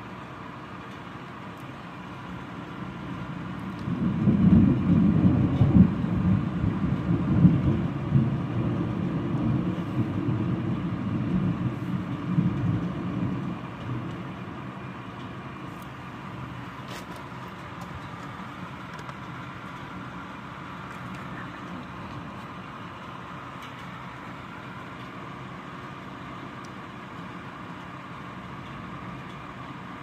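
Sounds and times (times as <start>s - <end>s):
rolling thunder: 3.2s - 14.7s.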